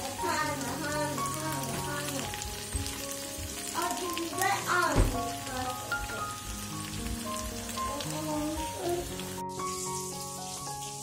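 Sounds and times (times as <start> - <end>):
background music: 0.0 - 11.0
potatoes sizzling in a pan: 0.0 - 11.0.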